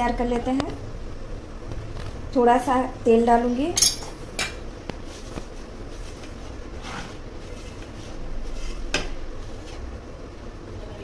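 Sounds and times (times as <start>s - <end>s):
hands rustling flour: 5.0s - 9.9s.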